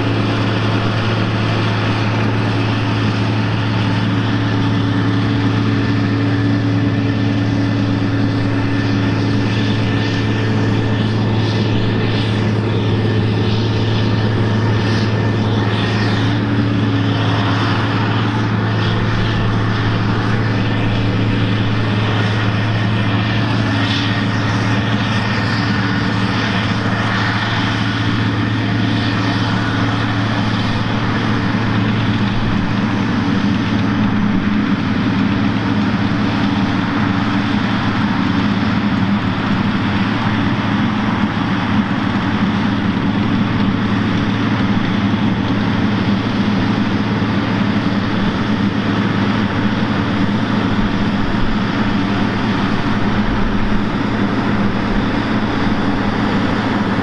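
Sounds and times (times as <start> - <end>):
tractor diesel engine drone: 0.0 - 57.0.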